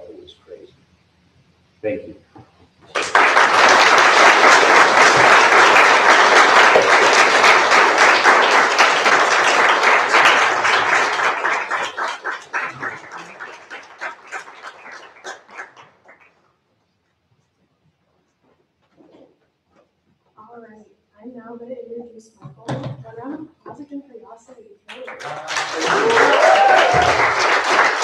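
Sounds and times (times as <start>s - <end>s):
audience applauding: 2.9s - 16.4s, 24.9s - 28.0s.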